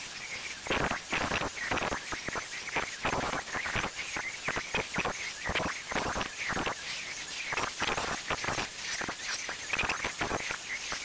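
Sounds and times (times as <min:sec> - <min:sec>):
faint high whine: 0:00.0 - 0:11.0.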